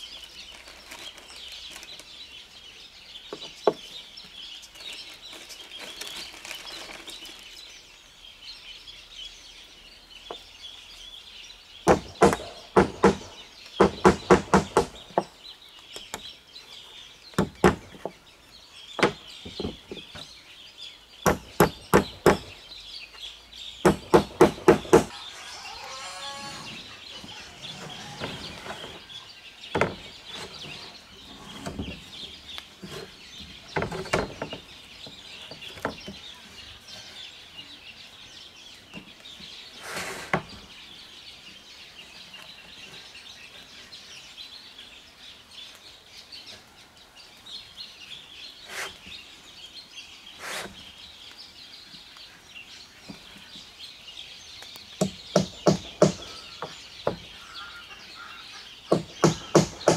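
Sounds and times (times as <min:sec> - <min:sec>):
birds chirping: 0:00.0 - 0:59.9
sharp hammer blows on roofing: 0:11.9 - 0:15.3, 0:21.3 - 0:22.6, 0:23.8 - 0:25.2, 0:55.0 - 0:57.2, 0:58.9 - 0:59.9
chicken calling: 0:25.1 - 0:29.2.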